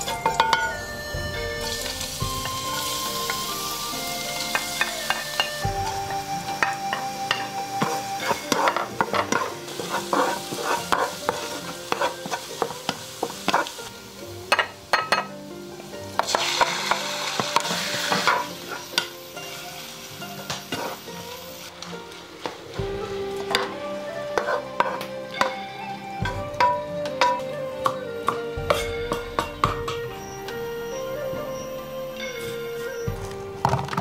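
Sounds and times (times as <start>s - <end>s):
food sizzling in a pan: 0.0s - 34.0s
spatula scraping pan: 6.6s - 14.0s, 16.2s - 21.1s, 22.4s - 25.6s.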